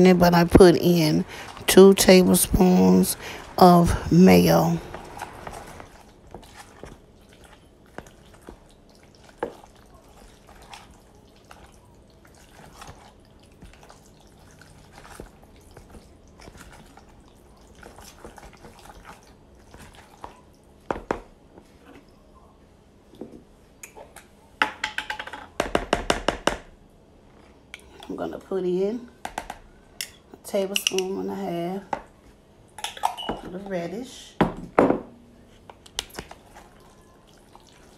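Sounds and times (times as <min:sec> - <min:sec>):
spoon squishing salad: 0:04.8 - 0:20.6.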